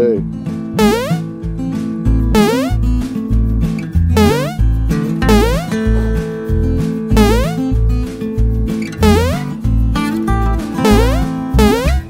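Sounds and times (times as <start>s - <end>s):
guitar tune: 0.3s - 12.0s
bass line: 0.8s - 1.3s, 2.3s - 3.0s, 4.1s - 5.8s, 7.1s - 7.8s, 9.0s - 9.6s, 10.8s - 12.0s.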